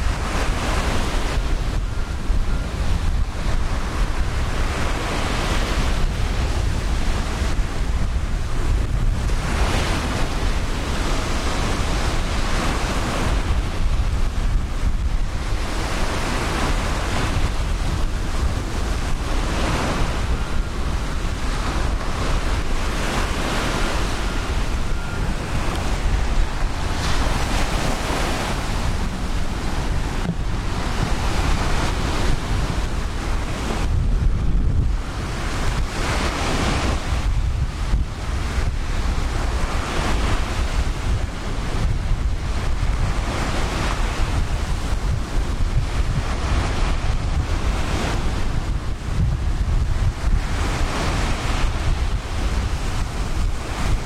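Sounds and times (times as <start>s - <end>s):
ocean surf breaking on beach: 0.0s - 54.0s
wind buffeting microphone: 0.0s - 54.0s.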